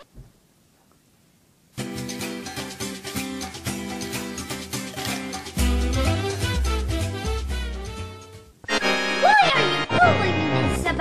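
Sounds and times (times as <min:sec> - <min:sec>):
upbeat instrumental music: 0:01.8 - 0:11.0
heavy bass line: 0:05.6 - 0:08.2.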